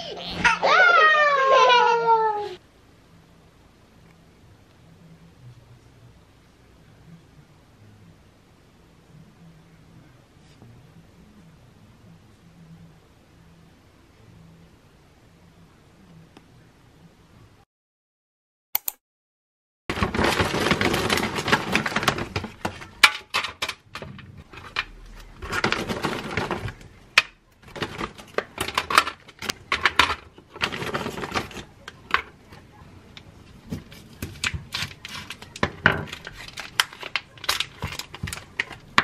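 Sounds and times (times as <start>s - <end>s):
plastic packaging rustling: 19.9s - 39.0s.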